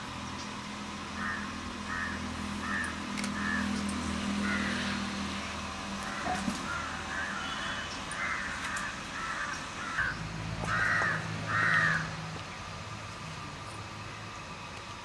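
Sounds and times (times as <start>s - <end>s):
crows cawing: 1.2s - 3.8s, 4.4s - 5.0s, 6.0s - 12.2s.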